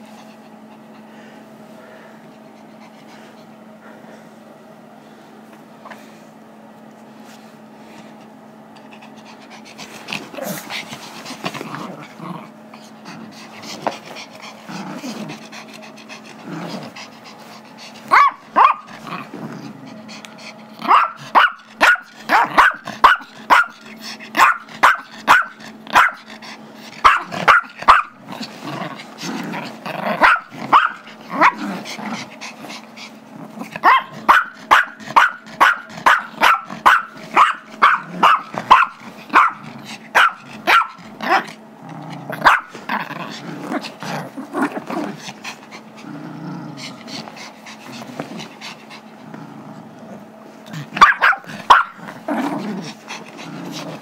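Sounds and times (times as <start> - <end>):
small dog yapping: 18.1 - 19.0, 20.8 - 23.8, 24.4 - 26.2, 27.0 - 28.2, 30.1 - 31.6, 33.8 - 41.5, 42.4 - 42.8, 51.0 - 52.0.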